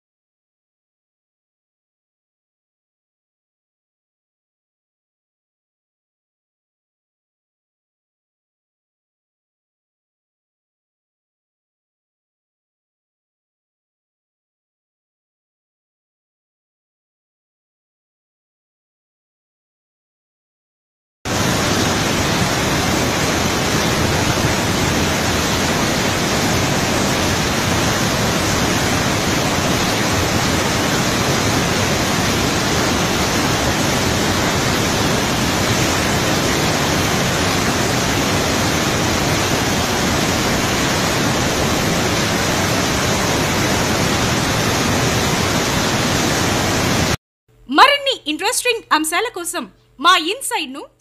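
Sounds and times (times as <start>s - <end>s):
roar of rushing water: 21.3s - 47.2s.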